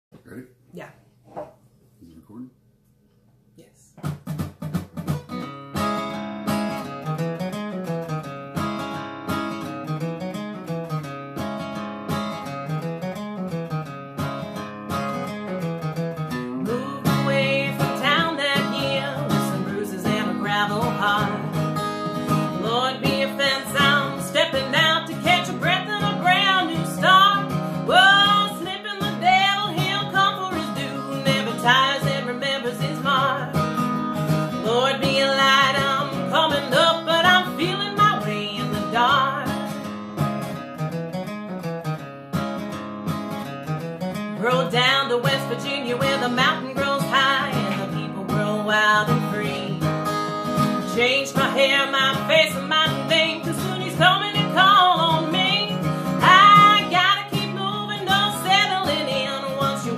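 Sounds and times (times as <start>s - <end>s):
acoustic guitar playing: 4.0s - 59.9s
woman singing: 16.6s - 33.8s, 34.5s - 39.8s, 44.4s - 59.9s.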